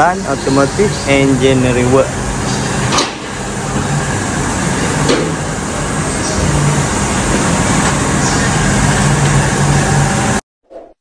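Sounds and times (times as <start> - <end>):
workshop noise: 0.0 - 10.4.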